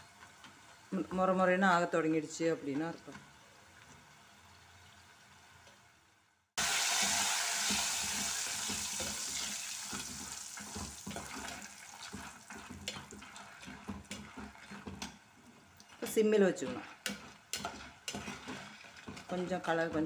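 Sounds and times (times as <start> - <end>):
banana slices sizzling in hot oil: 3.4 - 19.7
spoon stirring clatter: 10.1 - 20.0.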